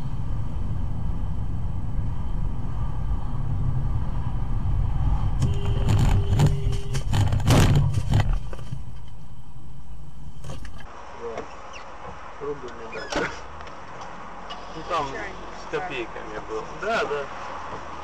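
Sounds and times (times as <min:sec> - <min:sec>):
car driving rumble: 0:00.0 - 0:18.0
car collision bangs and crunches: 0:05.5 - 0:08.9.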